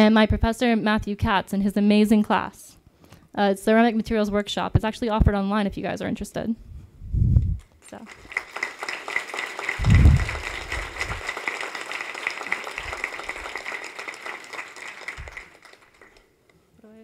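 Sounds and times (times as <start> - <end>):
audience applauding: 7.9 - 16.3.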